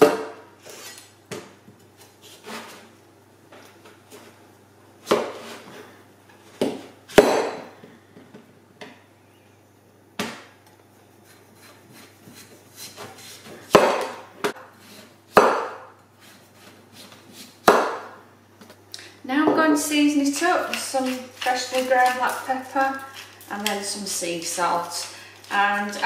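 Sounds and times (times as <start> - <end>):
knife chopping pumpkin: 5.1 - 5.4, 6.6 - 7.6, 11.3 - 18.2
blade hitting cutting board: 13.7 - 14.6, 15.4 - 15.8.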